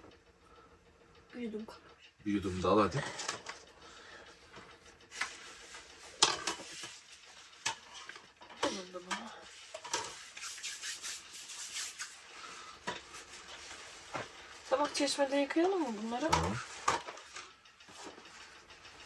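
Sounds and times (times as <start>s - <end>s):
dishes and utensils clinking: 6.2s - 7.0s.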